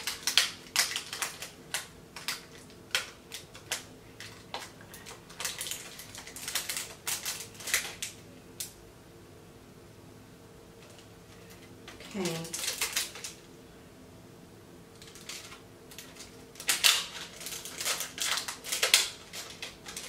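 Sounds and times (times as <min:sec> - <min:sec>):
plastic wrapper crinkling: 0:00.0 - 0:08.7, 0:10.8 - 0:13.4, 0:14.9 - 0:20.0.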